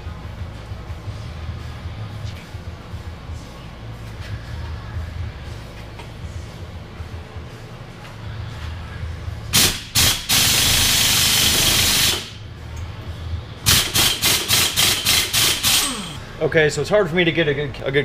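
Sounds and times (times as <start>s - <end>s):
impact wrench bursts: 9.5s - 12.4s, 13.6s - 16.2s.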